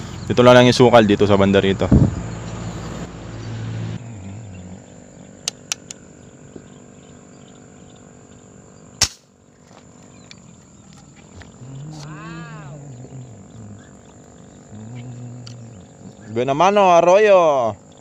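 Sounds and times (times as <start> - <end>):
outdoor background: 0.0 - 18.0
gun shot: 9.0 - 9.3.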